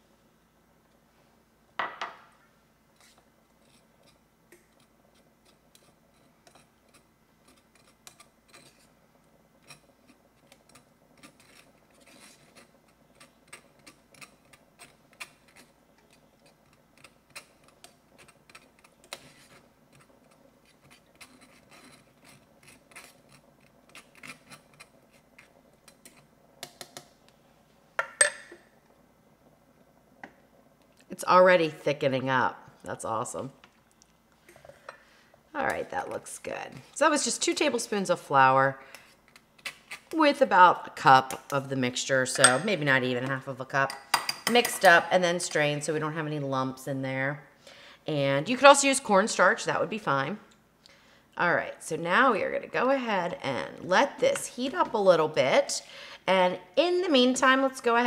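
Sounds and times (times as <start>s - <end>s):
fork scraping in wire strainer: 5.1s - 9.0s, 9.6s - 15.8s, 16.4s - 26.3s
metal clinking on pot: 28.0s - 28.6s, 42.4s - 42.8s.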